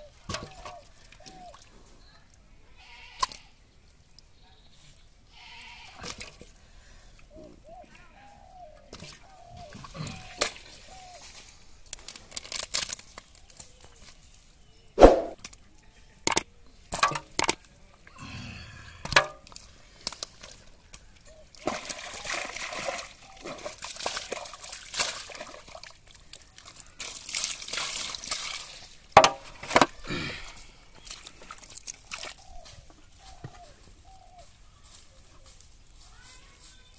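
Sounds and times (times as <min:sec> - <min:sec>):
splashing in muddy water: 0:19.5 - 0:32.5.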